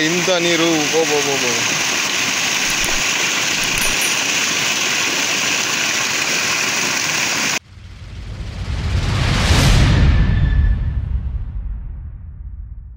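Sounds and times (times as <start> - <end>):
water gushing from a pipe: 0.0 - 7.6.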